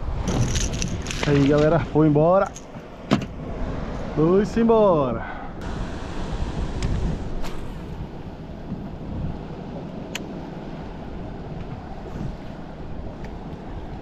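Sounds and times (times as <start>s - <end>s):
wind on microphone: 0.0s - 4.2s, 5.2s - 14.0s
water sloshing against boat: 6.2s - 14.0s.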